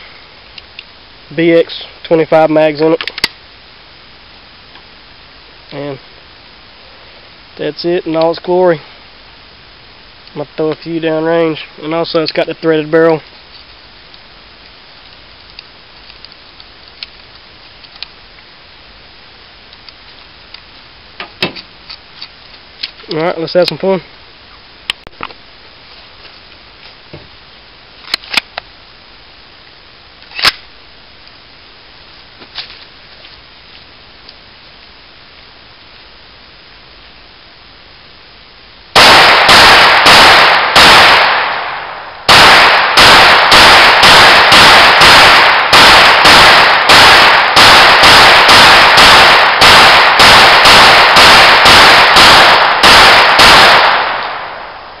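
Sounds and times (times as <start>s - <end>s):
pistol shots: 39.0s - 55.0s.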